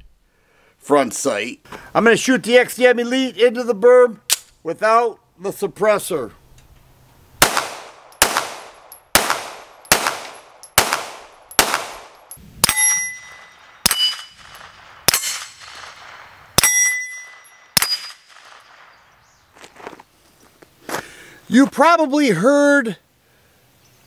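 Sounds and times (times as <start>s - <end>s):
suppressed pistol shots: 7.4s - 17.1s, 17.7s - 19.0s
pistol shots echoing: 7.4s - 19.0s
steel plate targets ringing: 9.8s - 15.8s, 16.6s - 18.8s.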